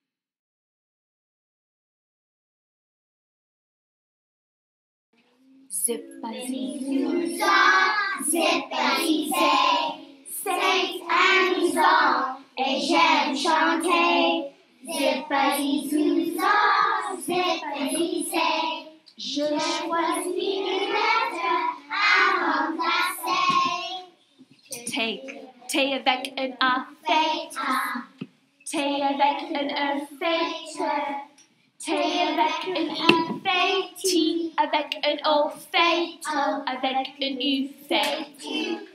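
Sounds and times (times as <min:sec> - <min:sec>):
children singing: 0:05.7 - 0:24.2, 0:26.9 - 0:38.9.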